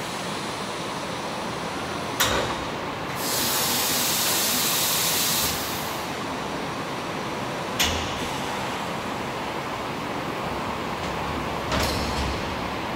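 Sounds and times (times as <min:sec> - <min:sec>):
compressed air hissing: 0:03.2 - 0:06.1.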